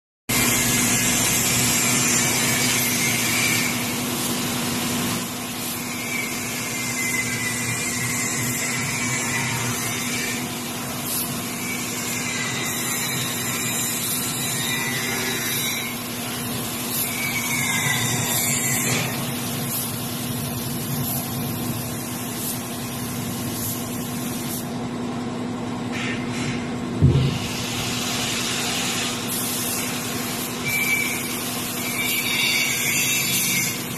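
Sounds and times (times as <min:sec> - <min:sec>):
air compressor humming: 0:00.3 - 0:33.9
paint spray gun hissing: 0:03.6 - 0:06.7, 0:19.1 - 0:24.7, 0:27.2 - 0:31.9.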